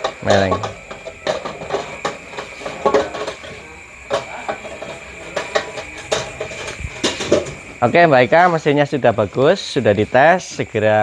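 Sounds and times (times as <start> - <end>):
pot clattering and knocking: 0.0 - 7.7.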